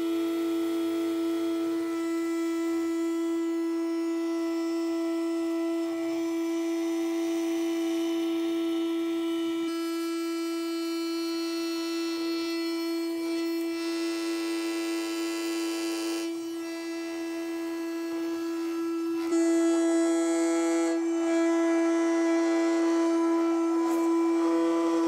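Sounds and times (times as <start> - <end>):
router spindle high-pitched hum: 0.0 - 25.0.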